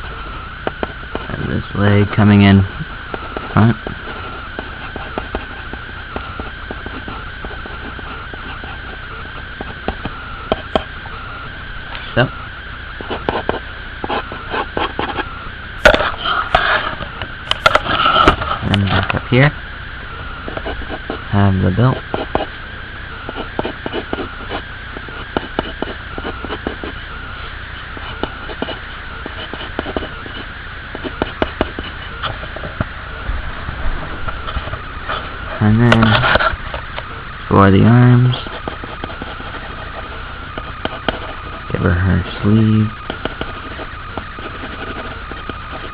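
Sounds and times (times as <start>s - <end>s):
thin high whine: 0.0s - 45.9s
pencil scratching on paper: 13.1s - 16.9s, 22.0s - 22.5s, 23.3s - 24.6s, 25.2s - 27.0s, 28.0s - 32.2s, 43.3s - 45.9s.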